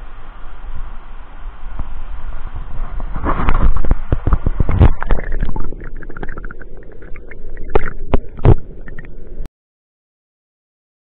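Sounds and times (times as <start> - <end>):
muffled underwater rumble: 0.0 - 9.5
water splashing: 2.5 - 9.5
bubbly pops: 3.6 - 9.1.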